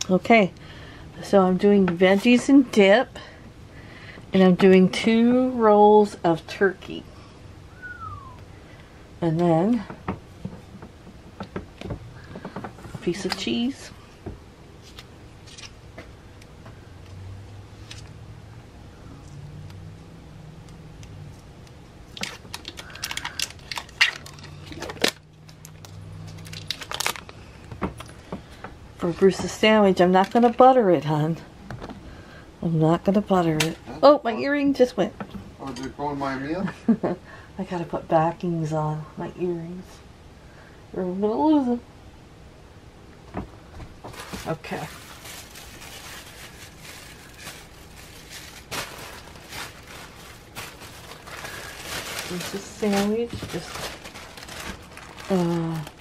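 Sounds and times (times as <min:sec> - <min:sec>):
low hum: 0:00.0 - 0:29.2
plastic wrapping crinkling: 0:22.0 - 0:28.1, 0:44.0 - 0:56.0.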